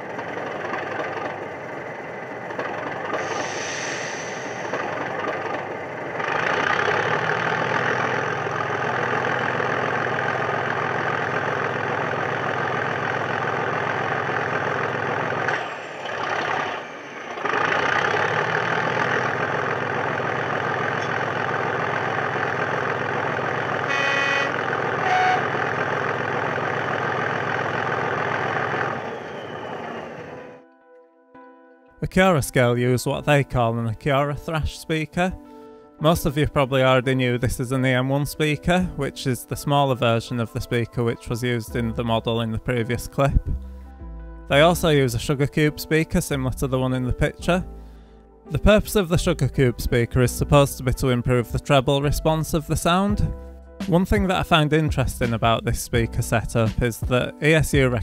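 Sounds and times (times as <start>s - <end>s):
model diesel engine sound: 0.0s - 30.6s
train horn toots: 23.8s - 25.7s.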